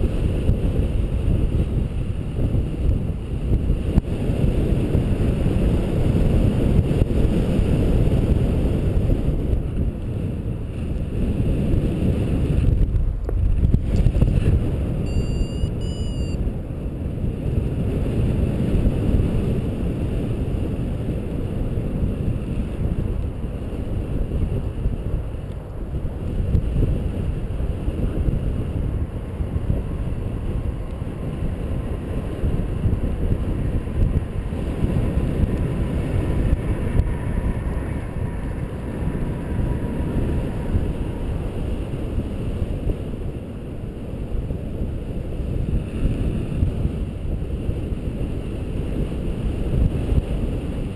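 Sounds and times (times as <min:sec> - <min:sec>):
wind rushing over microphone: 0:00.0 - 0:50.9
high whistle-like tone: 0:15.0 - 0:16.4.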